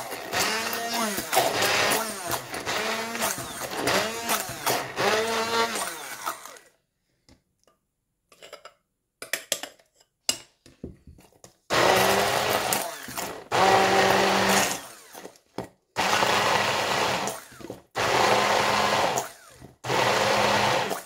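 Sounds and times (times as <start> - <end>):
stick blender bursts: 0.0 - 6.7.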